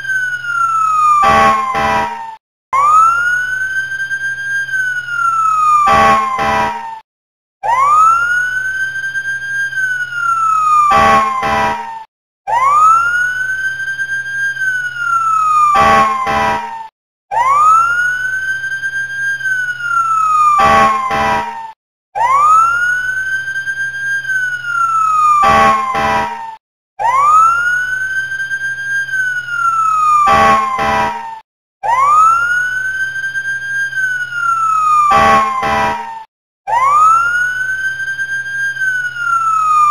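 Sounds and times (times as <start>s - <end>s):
short sharp siren blasts: 0.0s - 7.0s, 9.9s - 13.4s, 14.8s - 18.3s, 19.6s - 23.1s, 24.4s - 28.0s, 29.2s - 32.9s, 34.0s - 37.7s, 38.8s - 39.9s
siren wailing: 0.0s - 7.0s, 7.6s - 39.9s.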